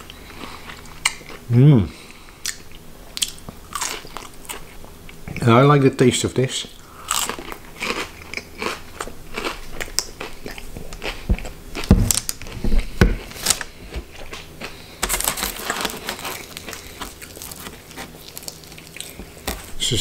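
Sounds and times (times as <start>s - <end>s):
chewing crunchy fried batter: 0.0s - 5.5s, 6.8s - 19.7s
dull thumps: 11.3s - 13.3s
paper crinkling: 15.0s - 19.9s.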